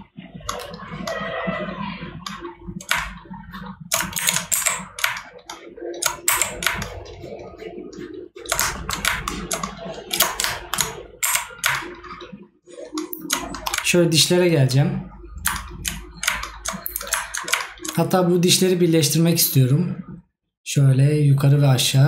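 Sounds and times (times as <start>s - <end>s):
low steady hum: 0.0s - 22.0s
keyboard and mouse clicking: 0.4s - 1.2s, 2.2s - 14.0s, 15.3s - 18.2s.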